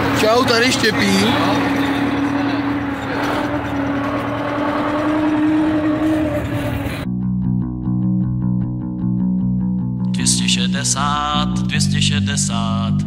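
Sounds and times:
tractor diesel engine droning: 0.0s - 7.1s
music with bass guitar: 6.6s - 13.0s.

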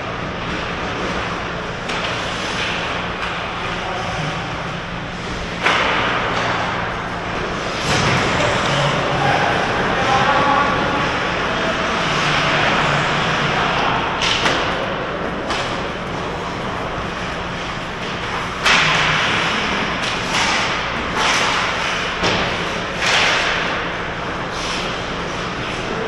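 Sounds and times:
hockey sticks and puck knocking: 14.2s - 16.2s, 18.0s - 23.9s.

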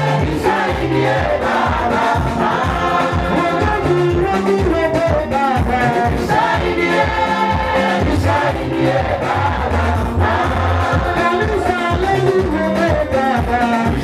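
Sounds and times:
choir singing gospel: 0.0s - 14.0s
instrumental accompaniment with bass: 0.0s - 14.0s.

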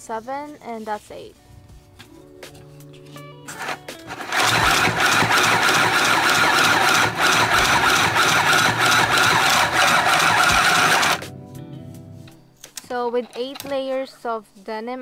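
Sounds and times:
sewing machine running: 3.5s - 11.2s.

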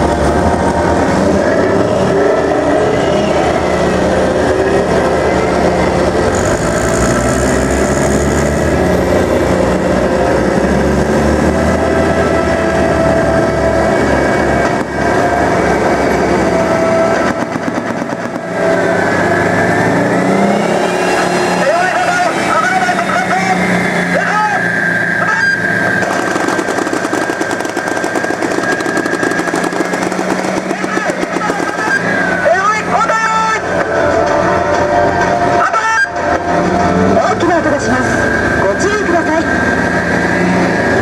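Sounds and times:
diesel engines running: 0.0s - 41.0s
tracks rolling: 11.7s - 20.0s, 25.8s - 37.4s.

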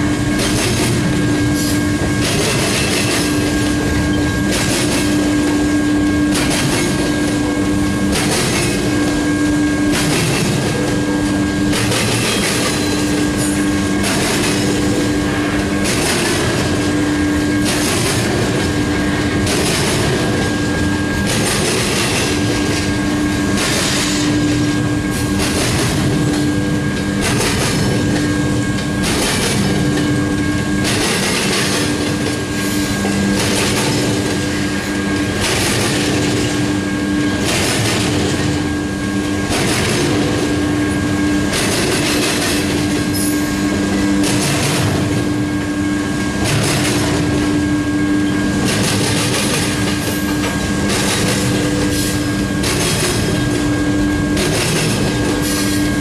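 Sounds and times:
steady whine: 0.0s - 56.0s
train wheels clattering over rail joints: 0.2s - 56.0s.

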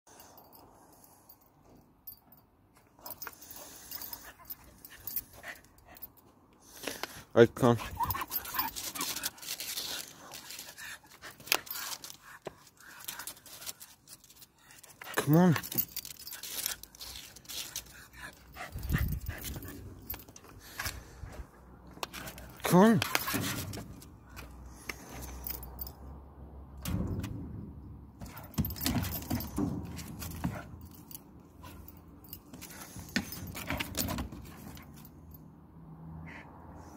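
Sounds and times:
dog collar metal clinks: 0.1s - 27.2s, 28.2s - 35.6s
dog panting: 17.6s - 20.3s.

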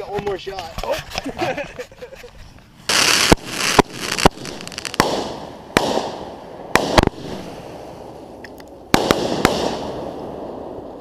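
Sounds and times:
firework hissing rush: 2.8s - 8.4s
fireworks banging: 2.9s - 11.0s.

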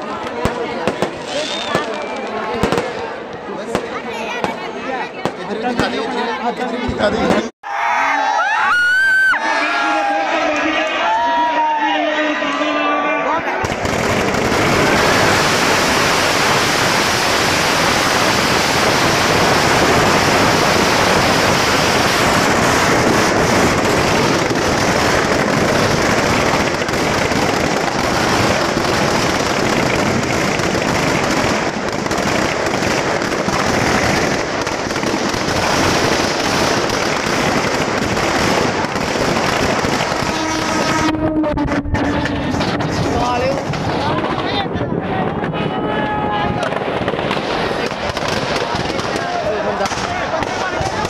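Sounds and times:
firecrackers crackling and popping: 0.0s - 7.5s, 13.5s - 51.0s.

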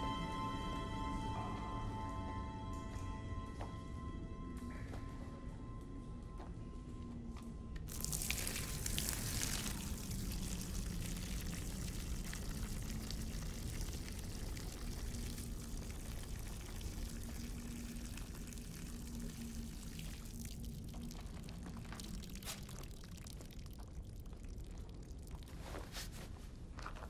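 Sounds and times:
low steady drone: 0.0s - 22.4s
person urinating onto ground: 7.9s - 27.0s.

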